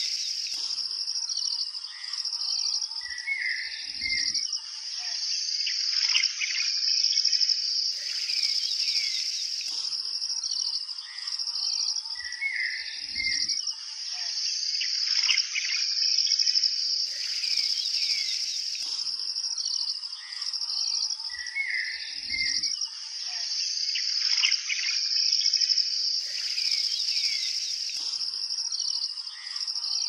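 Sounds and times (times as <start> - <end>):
birds chirping: 0.0 - 4.4, 7.9 - 11.5, 17.0 - 22.6, 26.2 - 30.0
insects trilling: 0.0 - 30.0.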